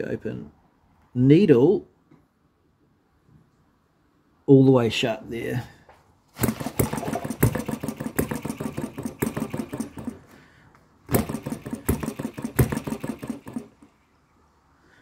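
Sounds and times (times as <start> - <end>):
model engine clattering firing: 6.4 - 10.2, 11.1 - 13.8.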